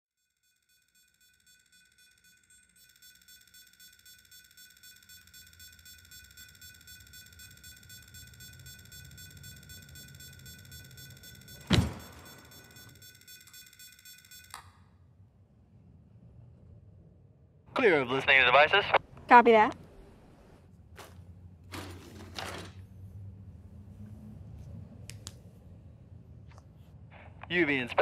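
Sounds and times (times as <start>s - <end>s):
pulsing high electronic tone: 0.2s - 14.6s.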